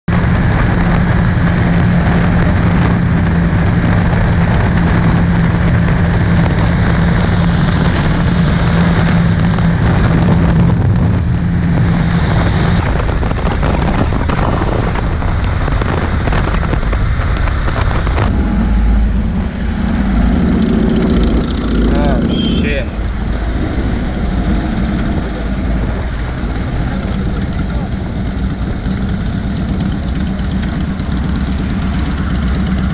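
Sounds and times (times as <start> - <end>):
motorcycle engine cruising: 0.1 - 32.9
wind rush on microphone: 0.1 - 32.9.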